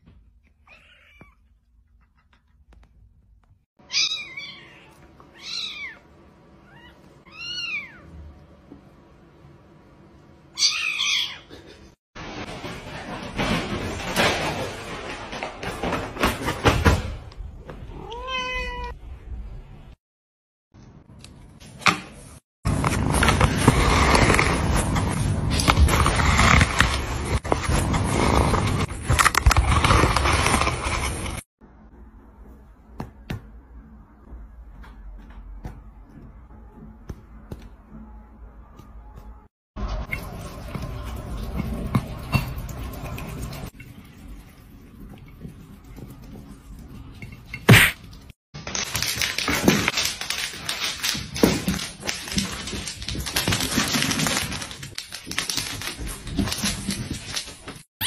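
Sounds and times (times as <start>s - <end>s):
plastic bristles scraping: 22.7s - 31.4s.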